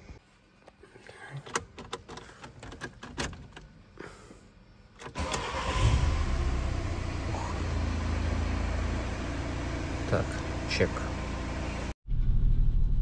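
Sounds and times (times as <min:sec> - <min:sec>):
diesel engine starting and idling: 0:05.1 - 0:13.0.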